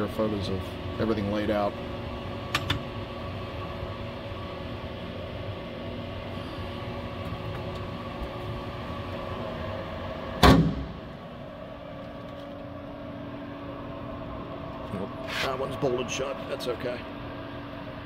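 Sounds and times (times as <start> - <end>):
steady hum: 0.0 - 18.0
metal cabinet door banging shut: 10.4 - 11.0.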